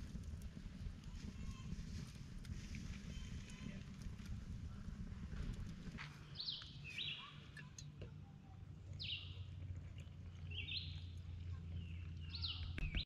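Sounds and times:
faint low rumble: 0:00.0 - 0:13.0
songbird calling: 0:06.3 - 0:07.8, 0:09.0 - 0:09.5, 0:10.4 - 0:11.2, 0:11.8 - 0:13.0.

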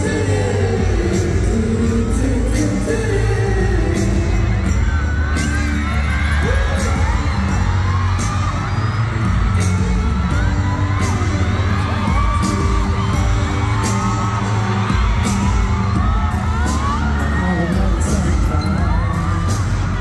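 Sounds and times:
person singing: 0:00.0 - 0:08.1, 0:14.7 - 0:20.0
fans cheering and screaming: 0:00.0 - 0:20.0
pop music with heavy bass beat: 0:00.0 - 0:20.0.

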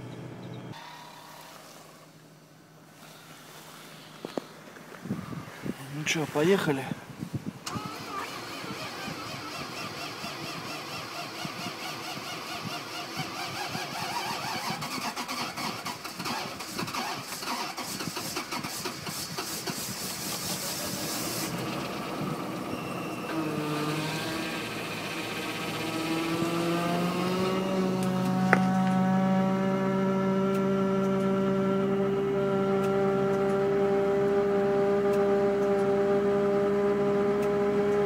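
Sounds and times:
car engine cranking and starting: 0:07.6 - 0:38.0.

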